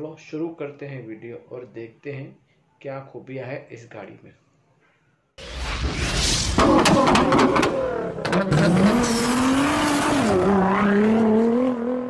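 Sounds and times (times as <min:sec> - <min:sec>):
sharp hits: 0:05.4 - 0:08.4
sports car engine revving: 0:06.8 - 0:12.0.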